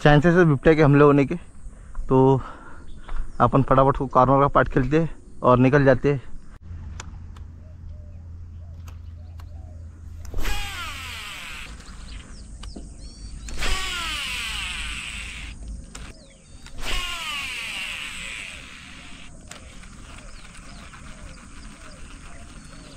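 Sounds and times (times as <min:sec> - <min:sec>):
fishing reel whirring: 0:10.2 - 0:22.9.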